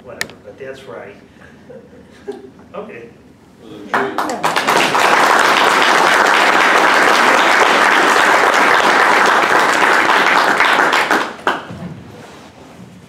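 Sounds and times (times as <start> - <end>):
audience applauding: 3.9 - 11.7.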